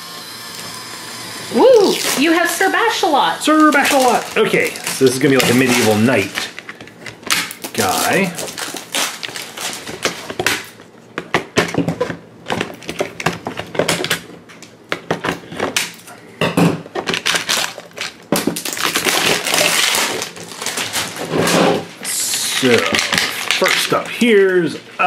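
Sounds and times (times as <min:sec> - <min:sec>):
plastic wrap crinkling: 0:01.6 - 0:11.0, 0:17.0 - 0:24.7
clicks and knocks of packaging: 0:03.6 - 0:16.0, 0:16.8 - 0:21.2, 0:22.5 - 0:24.1.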